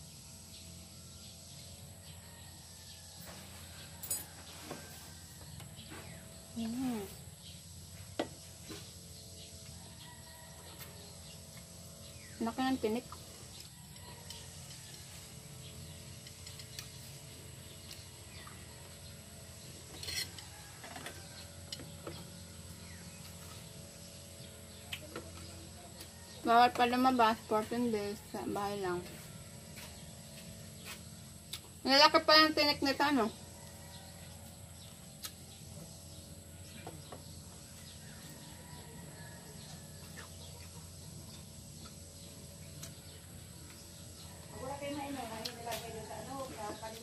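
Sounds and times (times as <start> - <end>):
faint chickens clucking: 33.2 - 45.6.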